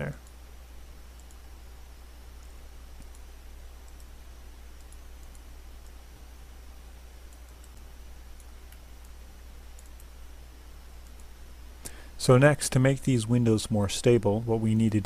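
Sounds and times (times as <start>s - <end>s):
low electrical hum and hiss: 0.0s - 15.0s
computer mouse clicks: 1.1s - 1.5s, 2.4s - 6.0s, 7.2s - 10.2s, 11.0s - 12.0s.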